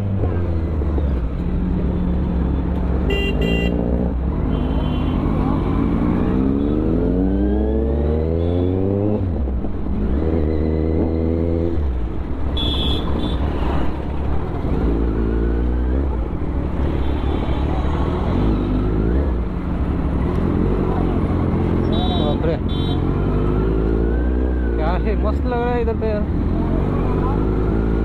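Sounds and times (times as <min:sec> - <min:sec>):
motorcycle engine revving: 0:01.6 - 0:12.0.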